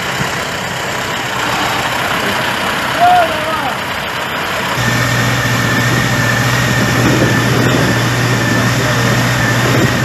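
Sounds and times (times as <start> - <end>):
tractor engine idling: 0.0 - 10.0
thin steady whine: 4.7 - 10.0.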